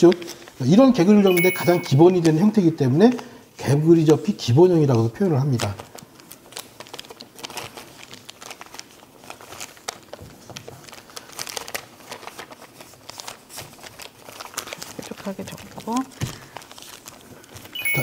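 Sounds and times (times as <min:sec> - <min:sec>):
paper crinkling and rustling: 0:05.3 - 0:17.8.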